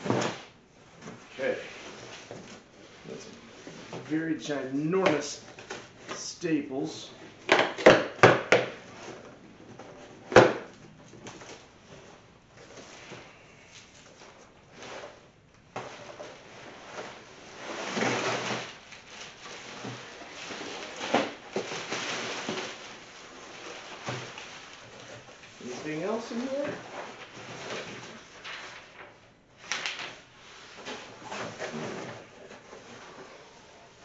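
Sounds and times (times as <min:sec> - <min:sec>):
cardboard and plastic scraping: 0:07.2 - 0:34.0
cardboard flap snapping: 0:29.6 - 0:30.2.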